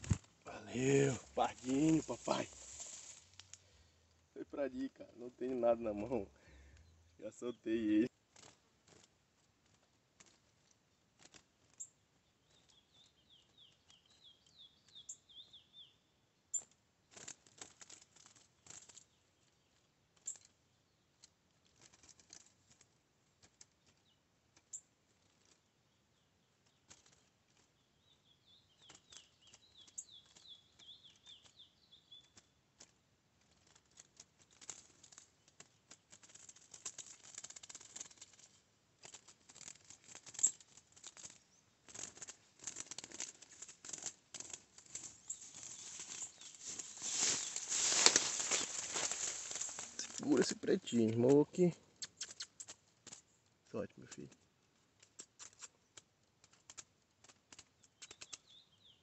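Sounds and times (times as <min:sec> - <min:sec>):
birds fluttering in wooden cage: 0:00.0 - 0:03.1, 0:16.6 - 0:20.6, 0:21.5 - 0:51.7, 0:55.0 - 0:59.0.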